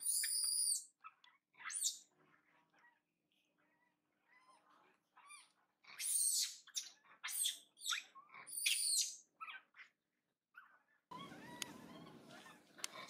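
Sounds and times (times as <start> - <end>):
baby monkey squealing: 0.0 - 0.9, 1.6 - 2.0, 5.2 - 9.6, 11.1 - 13.0.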